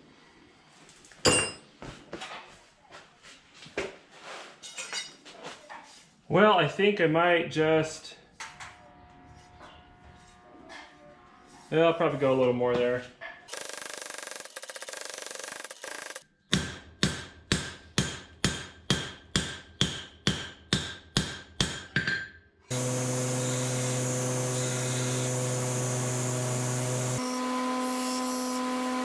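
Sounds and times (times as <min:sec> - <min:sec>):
power hammer pounding: 0:22.7 - 0:27.3
electric motor humming: 0:22.7 - 0:29.0.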